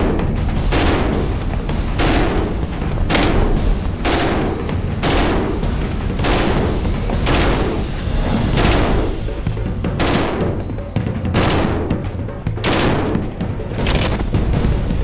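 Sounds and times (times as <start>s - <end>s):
machine gun firing bursts: 0.0s - 1.4s, 2.0s - 8.0s, 10.0s - 10.6s, 11.4s - 14.4s.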